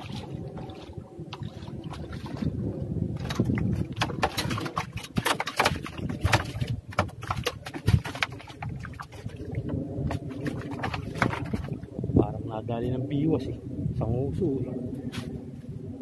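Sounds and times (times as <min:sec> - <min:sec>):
water splashing among plants: 0:00.0 - 0:02.6, 0:03.2 - 0:11.9.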